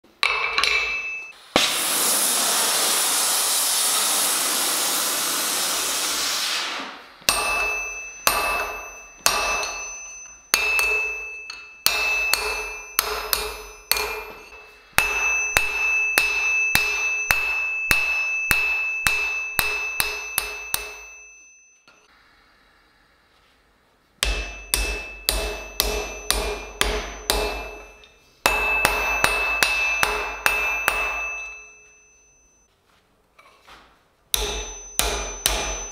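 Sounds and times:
hammer ringing on anvil: 0:00.2 - 0:01.4, 0:07.3 - 0:22.1, 0:24.2 - 0:32.7, 0:34.3 - 0:35.9
rushing hiss: 0:01.5 - 0:07.0.

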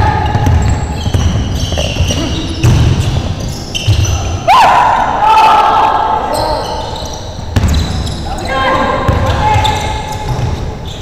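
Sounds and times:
shoe squeals: 0:00.0 - 0:11.0
basketball dribbling thumps: 0:00.2 - 0:04.1, 0:07.6 - 0:08.0.

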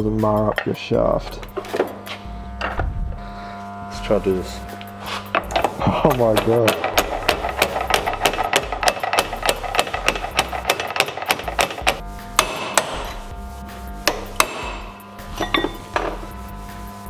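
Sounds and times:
hammer tapping on metal: 0:05.4 - 0:13.1, 0:14.0 - 0:16.2.

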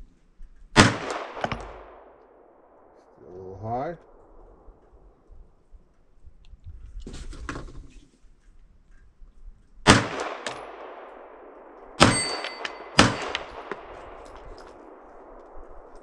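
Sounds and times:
pistol shots with echo: 0:00.8 - 0:02.1, 0:09.8 - 0:16.0
steel target ringing: 0:12.0 - 0:13.8.

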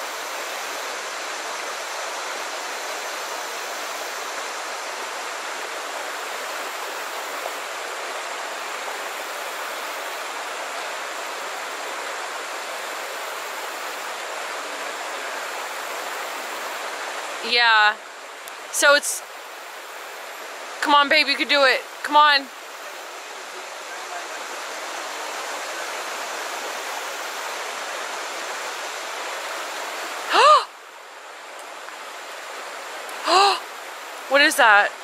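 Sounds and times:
creek water rushing over rocks: 0:00.0 - 0:35.0.

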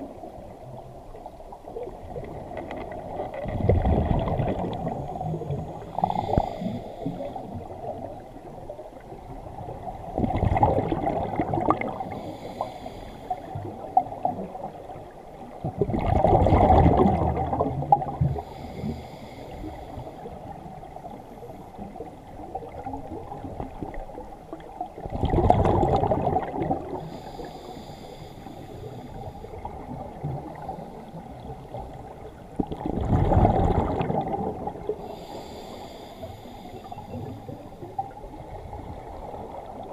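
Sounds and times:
bubbly exhalations underwater: 0:02.2 - 0:06.5, 0:10.1 - 0:12.1, 0:15.6 - 0:18.4, 0:25.0 - 0:27.1, 0:32.6 - 0:35.0
breathing through a regulator: 0:05.0 - 0:07.7, 0:11.9 - 0:13.8, 0:18.2 - 0:20.4, 0:27.0 - 0:29.7, 0:34.9 - 0:38.0.

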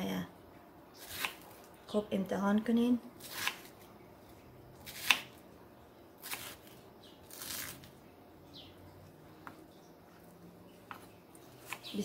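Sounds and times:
knife slicing onion on board: 0:01.0 - 0:01.6, 0:03.2 - 0:03.8, 0:04.8 - 0:05.4, 0:06.2 - 0:07.8, 0:10.9 - 0:12.0.

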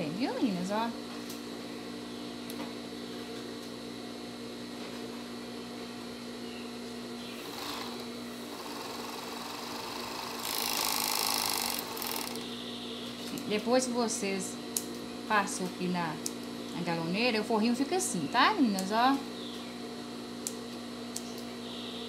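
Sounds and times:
sewing machine motor humming: 0:07.4 - 0:12.5
sewing machine stitching: 0:08.6 - 0:12.4.

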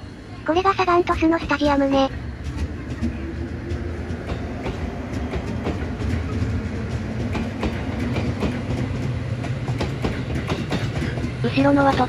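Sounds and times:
train rumbling: 0:00.0 - 0:12.0
wheels clicking over rail joints: 0:02.4 - 0:12.0.

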